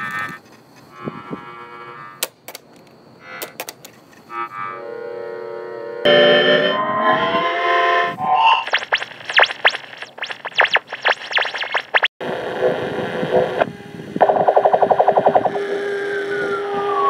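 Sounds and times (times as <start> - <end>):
swooping pitch sweeps: 7.0 - 12.1
warbling tones: 8.1 - 12.2, 14.2 - 15.6
fast stutter of repeats: 8.2 - 12.2, 14.2 - 15.6.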